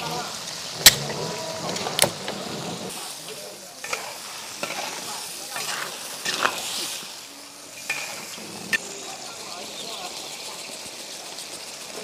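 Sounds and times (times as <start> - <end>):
crayfish sizzling in a wok: 0.0 - 12.0
metal spatula scraping a wok: 0.8 - 7.0, 7.8 - 8.8.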